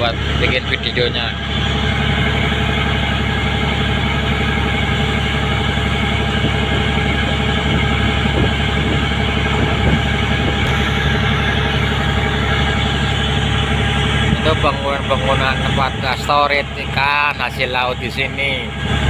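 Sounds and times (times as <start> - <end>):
ship engine droning: 0.0 - 19.0
wind blowing across microphone: 6.1 - 12.8.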